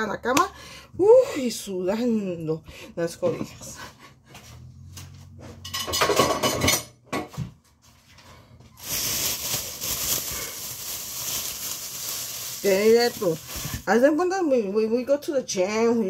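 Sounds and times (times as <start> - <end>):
dishes and utensils clattering: 5.5 - 7.4.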